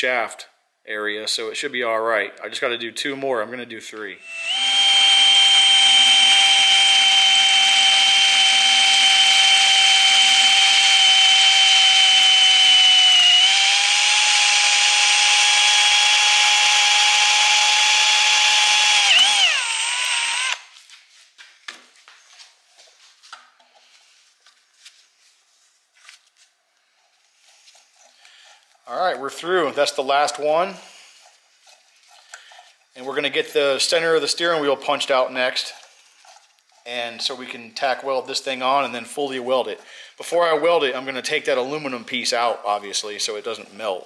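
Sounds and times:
electric drill drilling metal: 0:04.2 - 0:20.7.

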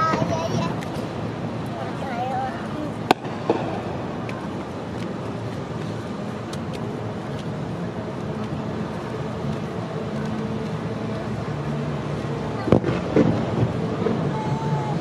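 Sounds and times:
firework crackles: 0:00.0 - 0:02.0, 0:02.7 - 0:05.8, 0:12.4 - 0:15.0
faint engine hum: 0:00.0 - 0:15.0
road traffic rumble: 0:00.0 - 0:15.0.

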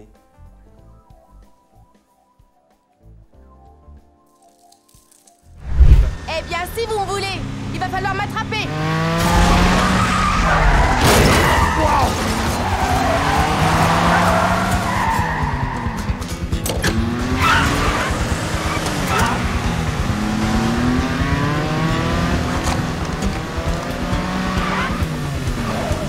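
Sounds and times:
film score music: 0:00.0 - 0:26.0
car engines revving: 0:05.6 - 0:26.0
tyres squealing: 0:09.2 - 0:26.0.

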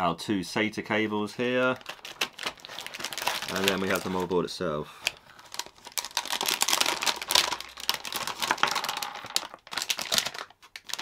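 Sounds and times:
plastic bag crinkling: 0:01.7 - 0:04.4, 0:05.0 - 0:11.0.

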